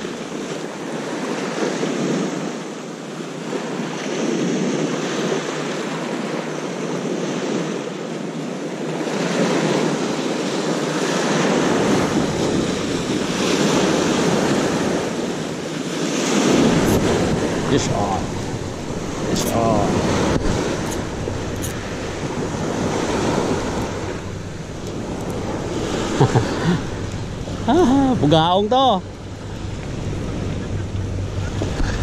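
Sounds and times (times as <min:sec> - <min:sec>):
surf breaking on rocks: 0:09.0 - 0:32.0
wind buffeting microphone: 0:09.0 - 0:32.0.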